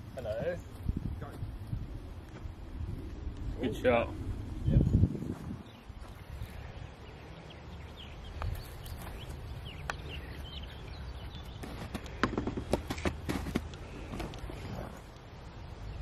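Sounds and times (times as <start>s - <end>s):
low wind rumble: 0.0s - 16.0s.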